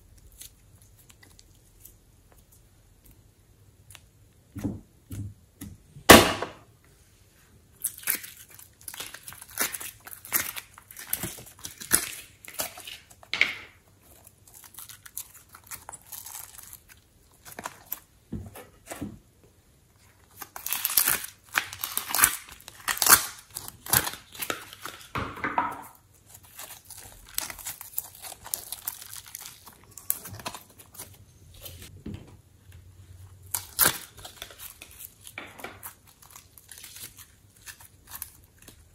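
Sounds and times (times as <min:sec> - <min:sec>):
slime squishing and crackling: 0:07.8 - 0:13.3, 0:14.0 - 0:18.2, 0:20.2 - 0:25.2, 0:26.1 - 0:31.9, 0:33.4 - 0:38.9.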